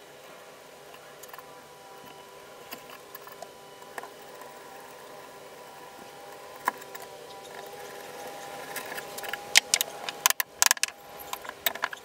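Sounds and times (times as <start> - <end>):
hand drill gears whirring: 2.0 - 12.0.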